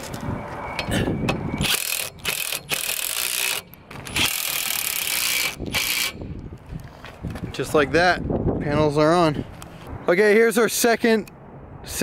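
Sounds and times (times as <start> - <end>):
ratchet wrench clicking: 1.6 - 6.2.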